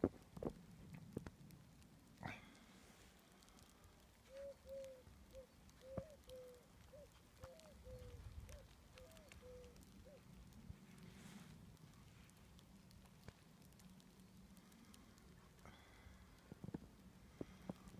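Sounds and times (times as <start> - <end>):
faint bird calling: 4.2 - 10.6.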